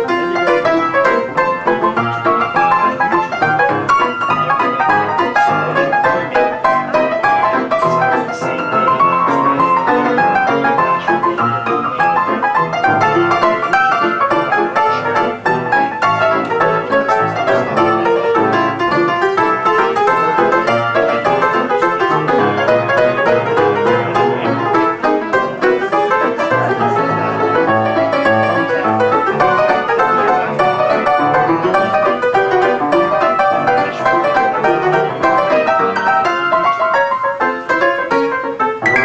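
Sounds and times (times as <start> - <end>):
ragtime on upright piano: 0.0 - 39.0.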